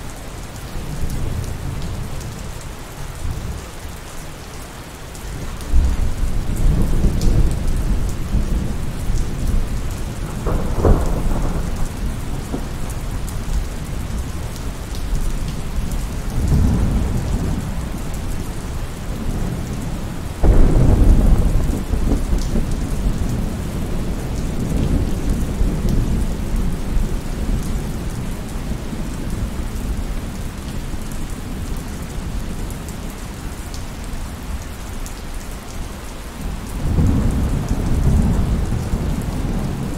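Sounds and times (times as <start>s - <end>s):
heavy rain falling: 0.0s - 39.9s
rolling thunder: 5.7s - 30.1s, 36.4s - 39.9s.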